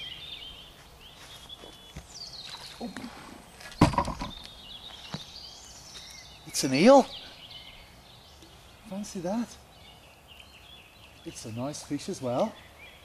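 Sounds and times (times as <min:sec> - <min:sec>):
small birds chirping: 0:00.0 - 0:13.0
loud thump: 0:03.8 - 0:04.4.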